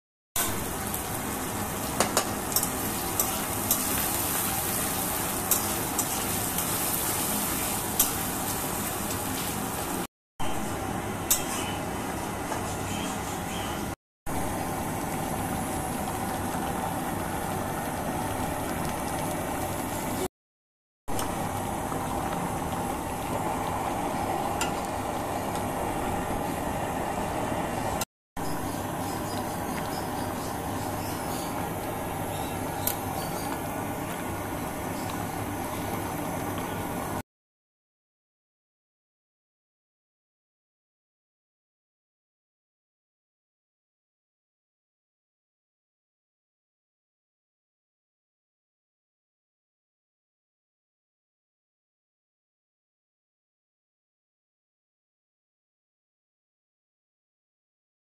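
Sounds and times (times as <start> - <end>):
vegetables sizzling in oil: 0.4 - 13.0, 28.4 - 37.2.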